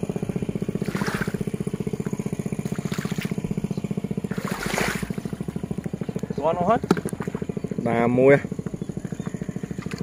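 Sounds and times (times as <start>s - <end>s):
small engine running: 0.0s - 10.0s
feet wading through water: 0.6s - 6.2s, 6.8s - 7.8s.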